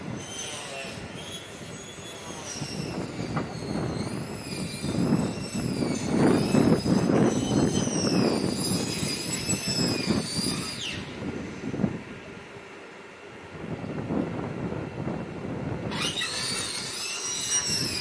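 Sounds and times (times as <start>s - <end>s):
high wavering squeal: 0.1s - 11.2s, 15.9s - 18.0s.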